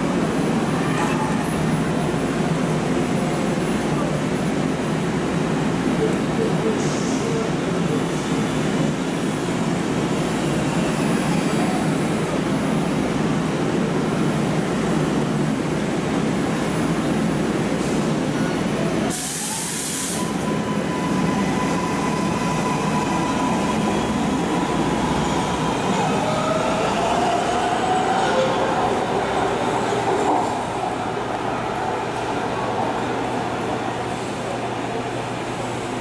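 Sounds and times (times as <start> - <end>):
train whine: 16.5 - 36.0
burst of air hiss: 19.1 - 20.3.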